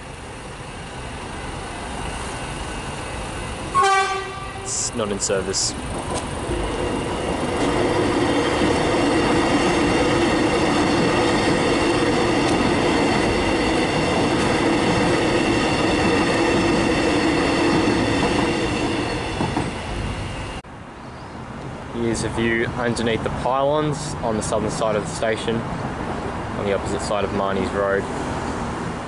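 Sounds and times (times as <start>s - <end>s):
electric train humming: 0.0s - 20.6s
train wheels rumbling on rail: 0.1s - 20.6s.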